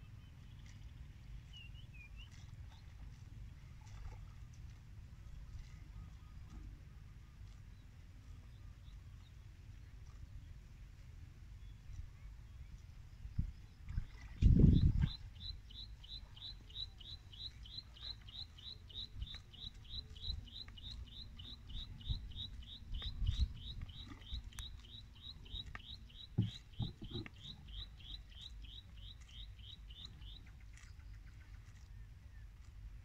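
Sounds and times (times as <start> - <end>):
bird chirping: 14.7 - 30.4
dull low thumps: 26.1 - 27.6.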